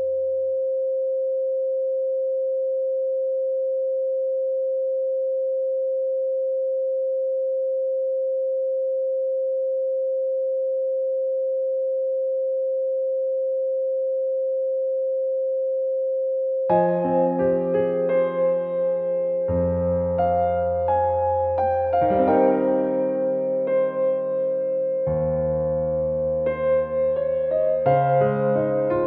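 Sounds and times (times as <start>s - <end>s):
faint lower tones: 16.7s - 29.0s
steady pure tone: 16.7s - 29.0s.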